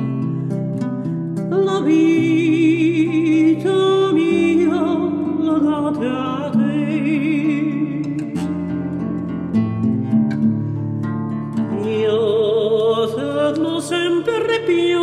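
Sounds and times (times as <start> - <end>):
guitar accompaniment: 0.0 - 15.0
singing with wide vibrato: 1.5 - 9.4, 11.5 - 15.0.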